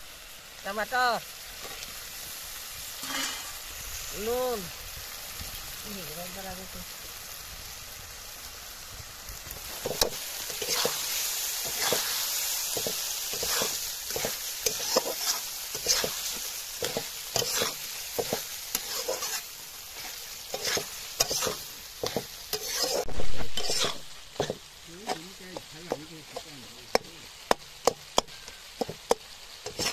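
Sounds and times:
masala sizzling: 0:00.0 - 0:29.9
metal spatula scraping pan: 0:03.0 - 0:03.7, 0:09.8 - 0:27.1, 0:27.8 - 0:29.9.

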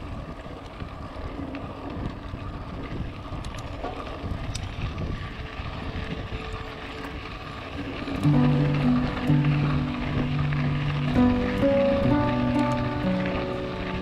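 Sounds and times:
bike clicks and rattles: 0:00.0 - 0:08.3
wind on microphone: 0:00.0 - 0:08.3
tyres rolling on dirt: 0:00.0 - 0:14.0.

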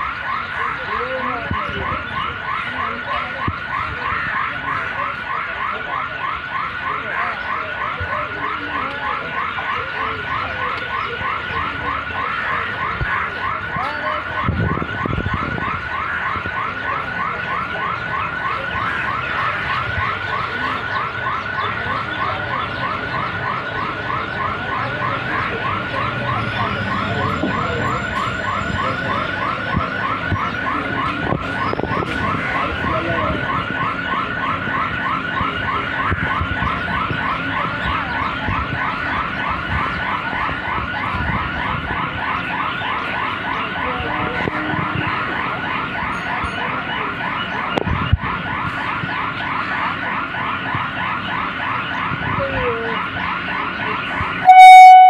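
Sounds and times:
electronic chirping: 0:54.4 - 0:55.0.

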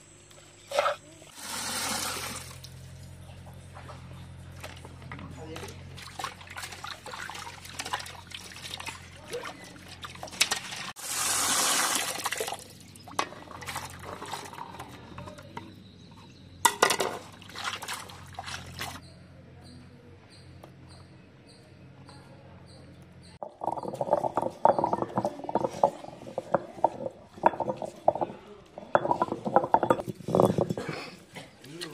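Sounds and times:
water pouring: 0:06.0 - 0:14.7, 0:23.4 - 0:30.7.

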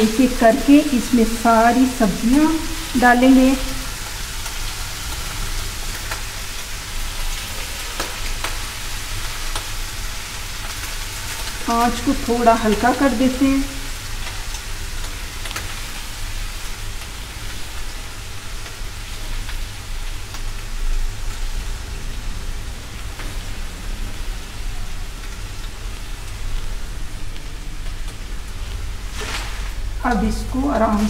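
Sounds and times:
low steady hum: 0:00.0 - 0:04.2, 0:11.5 - 0:14.3
food sizzling in hot oil: 0:00.0 - 0:31.0.

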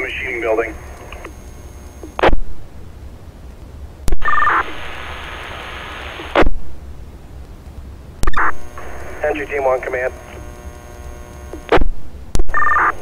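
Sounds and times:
radio squelch burst: 0:00.0 - 0:02.4, 0:04.1 - 0:06.6, 0:08.2 - 0:13.0
radio open-channel hiss: 0:00.0 - 0:13.0.

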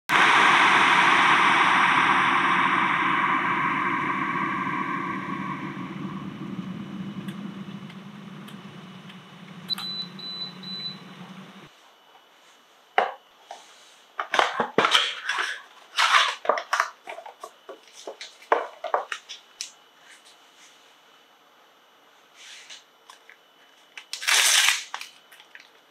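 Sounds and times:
electric kettle heating water: 0:00.1 - 0:11.7
high beep: 0:09.6 - 0:11.5.

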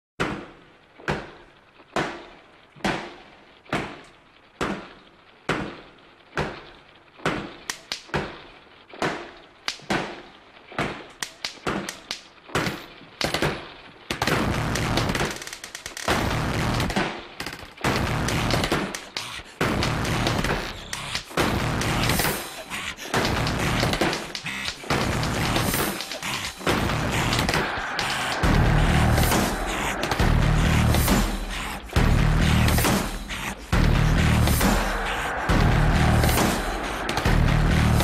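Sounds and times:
sharp bangs: 0:17.8 - 0:38.0.

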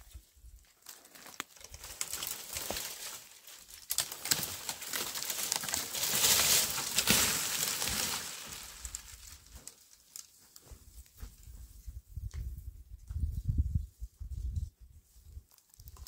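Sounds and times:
dead wood cracking and snapping: 0:00.8 - 0:10.3
tree crashing onto stony ground: 0:01.1 - 0:09.8.

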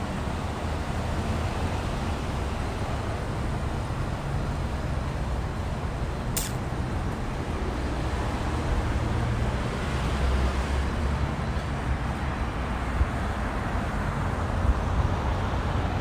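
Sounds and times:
traffic rumble: 0:00.0 - 0:16.0
short sharp hiss: 0:06.4 - 0:06.6.

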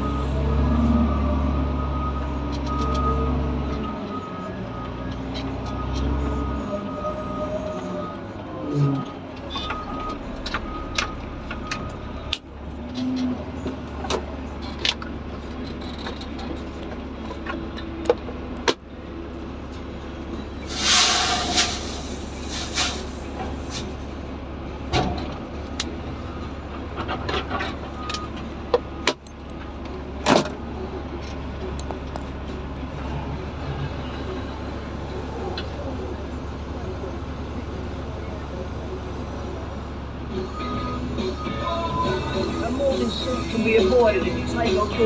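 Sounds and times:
diesel engine low drone: 0:00.0 - 0:45.0
loud hissing burst: 0:20.7 - 0:23.1.

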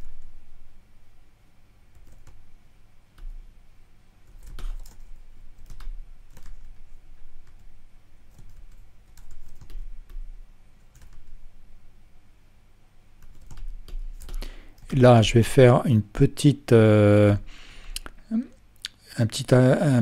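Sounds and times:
keyboard and mouse clicks: 0:04.3 - 0:06.8, 0:13.2 - 0:14.9.

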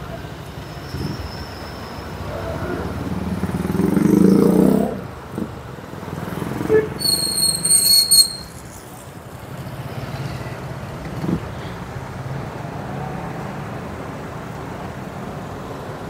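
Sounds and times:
traffic rumble: 0:00.0 - 0:16.0
high-pitched squeal: 0:07.0 - 0:09.0.

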